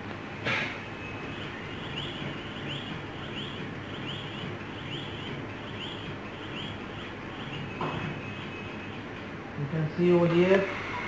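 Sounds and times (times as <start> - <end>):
room noise: 0.0 - 11.0
bird chirping: 0.8 - 9.3.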